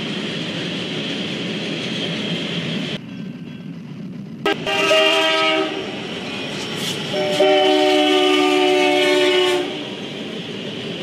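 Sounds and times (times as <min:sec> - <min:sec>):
passing train rumble: 0:00.0 - 0:11.0
locomotive air horn chord: 0:04.5 - 0:05.8, 0:07.1 - 0:09.8.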